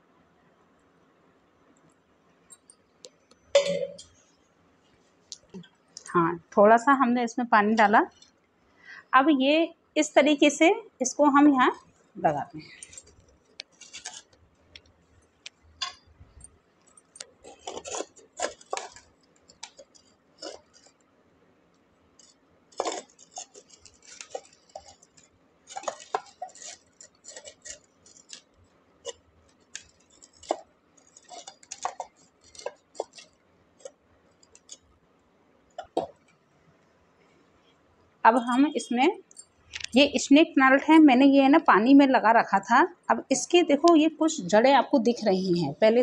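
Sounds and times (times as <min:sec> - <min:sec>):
pottery shard clinking on clay pot: 0:12.6 - 0:14.4
scraping in potting soil: 0:12.7 - 0:14.4, 0:17.4 - 0:21.0, 0:22.2 - 0:34.0.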